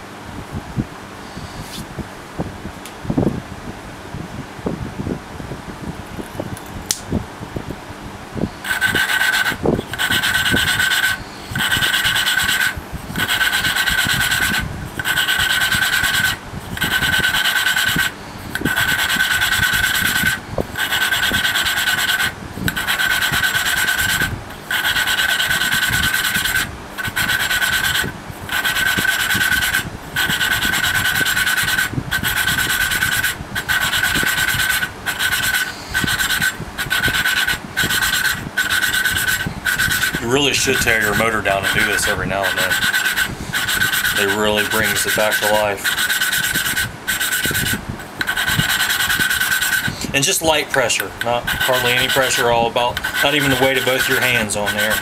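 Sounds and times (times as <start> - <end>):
valve grinding compound rasping: 8.6 - 55.0.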